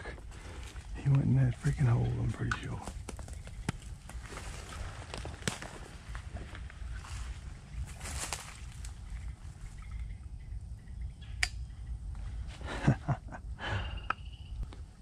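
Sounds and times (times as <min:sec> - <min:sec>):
low steady rumble: 0:00.0 - 0:15.0
sharp click: 0:11.4 - 0:11.6.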